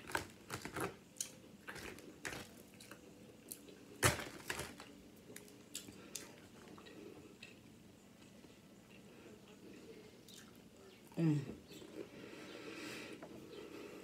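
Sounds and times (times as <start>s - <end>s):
onion rings crunching: 0.0s - 7.6s.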